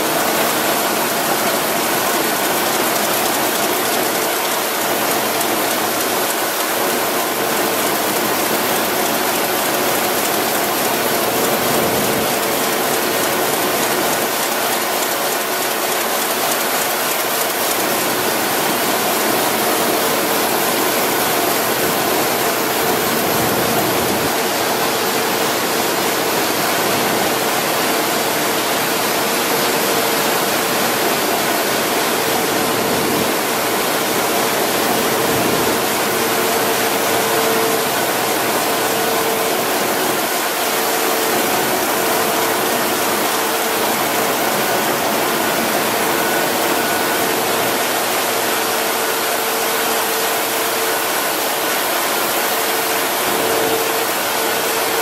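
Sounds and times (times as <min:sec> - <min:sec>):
constant machine hum: 0:00.0 - 0:55.0.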